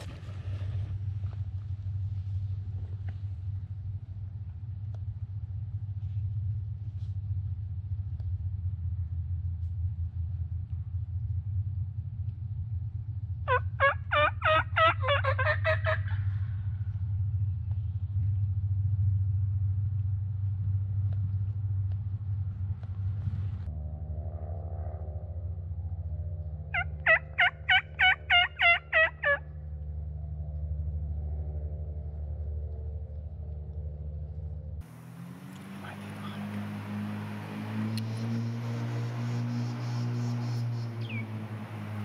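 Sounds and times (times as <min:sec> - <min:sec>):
steady low hum: 0:00.0 - 0:42.0
turkey gobbling: 0:13.5 - 0:16.5, 0:26.7 - 0:29.5, 0:35.5 - 0:42.0.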